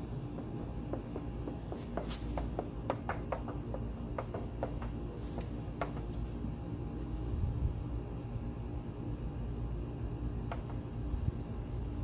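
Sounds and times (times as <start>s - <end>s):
steady low rumble: 5.0s - 12.0s.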